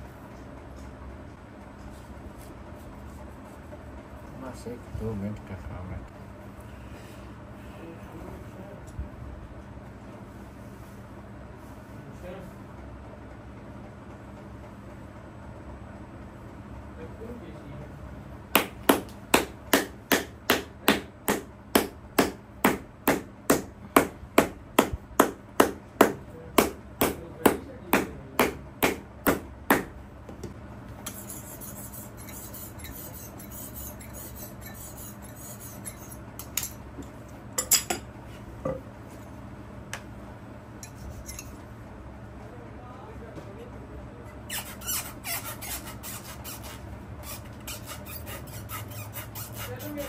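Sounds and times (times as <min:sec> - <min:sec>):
hammer striking leather heel: 0:18.6 - 0:29.9
knife scraping on sharpening block: 0:31.0 - 0:36.8, 0:40.8 - 0:41.6, 0:44.7 - 0:50.0.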